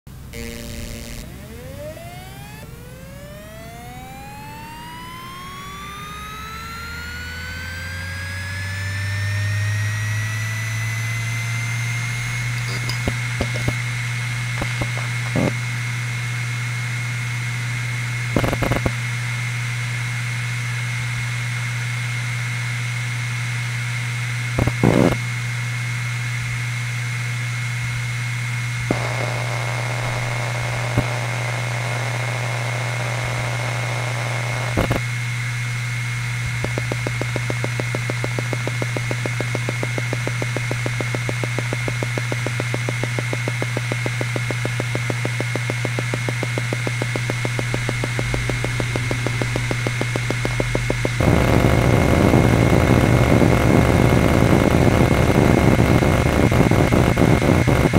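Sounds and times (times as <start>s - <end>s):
hard drive high whine: 0.1s - 57.9s
hard drive spinning hum: 0.1s - 57.9s
rapid seek ticks: 36.6s - 51.4s.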